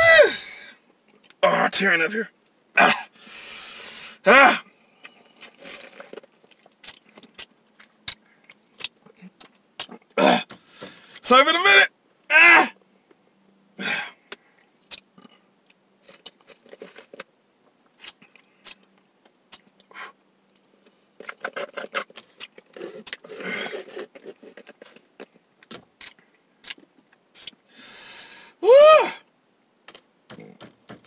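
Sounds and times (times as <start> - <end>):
straw scraping and squeaking in lid: 5.2 - 6.6, 21.2 - 25.3
person slurping drink: 5.3 - 6.2, 22.6 - 25.0.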